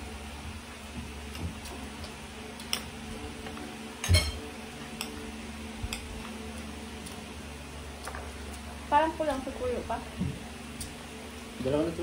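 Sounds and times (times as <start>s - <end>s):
cutlery clinking on plates: 4.0s - 4.4s.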